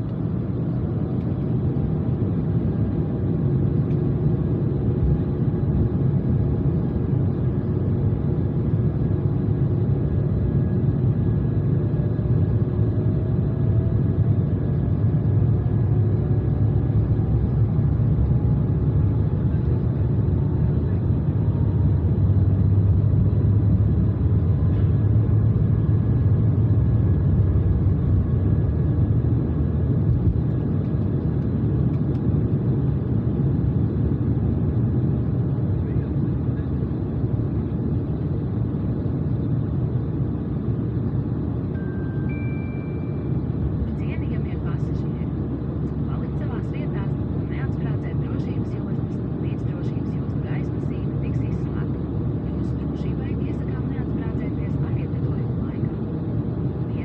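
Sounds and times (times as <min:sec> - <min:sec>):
jet engine cabin rumble: 0:00.0 - 0:57.0
faint rising tone: 0:41.7 - 0:43.5.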